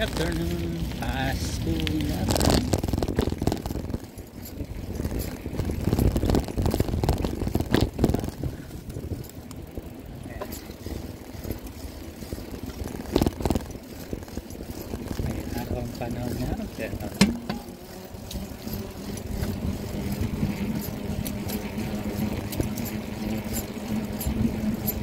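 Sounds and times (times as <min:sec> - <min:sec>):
microphone handling knocks and clicks: 0:17.2 - 0:17.7.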